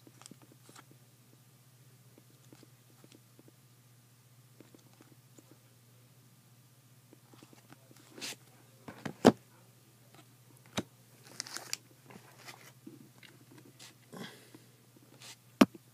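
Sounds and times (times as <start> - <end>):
foil wrappers crinkling: 11.2 - 12.7.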